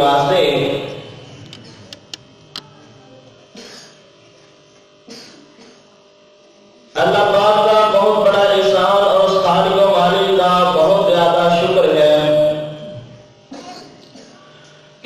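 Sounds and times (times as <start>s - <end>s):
man chanting: 7.0s - 13.0s.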